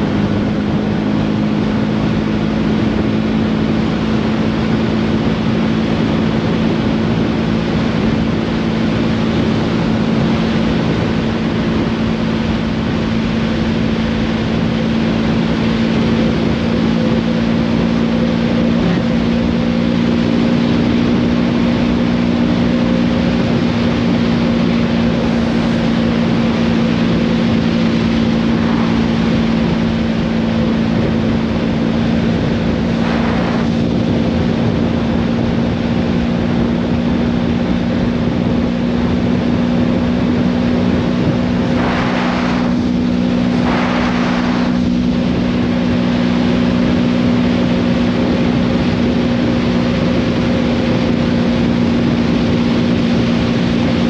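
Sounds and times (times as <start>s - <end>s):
motorcycle engine cruising: 0.0s - 54.0s
wind rushing: 23.3s - 37.4s, 38.2s - 47.1s.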